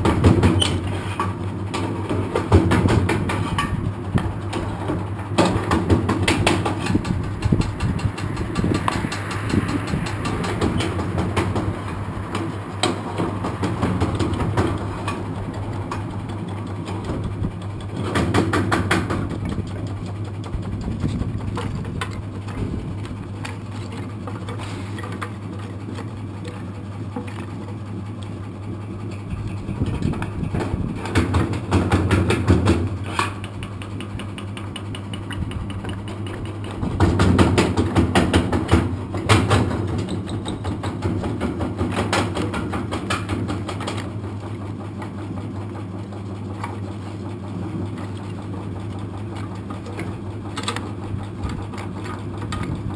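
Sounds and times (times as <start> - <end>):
machine motor humming: 3.8 - 31.7.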